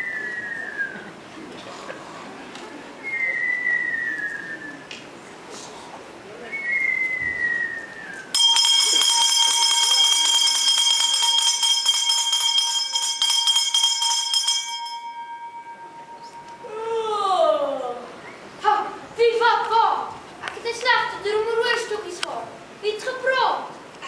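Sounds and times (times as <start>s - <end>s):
short falling whistles: 0.0s - 1.0s, 3.0s - 4.9s, 6.5s - 8.3s
handbell ringing: 8.4s - 16.8s.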